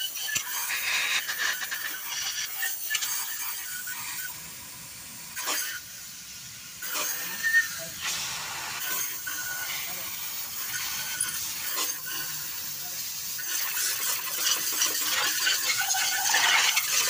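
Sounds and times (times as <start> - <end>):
steady hiss: 0.0 - 17.0
short high squeaks: 15.6 - 17.0.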